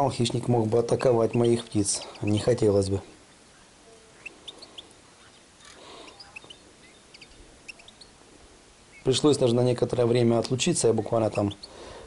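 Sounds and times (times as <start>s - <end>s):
faint bird chirps: 1.0s - 9.3s, 10.8s - 11.9s.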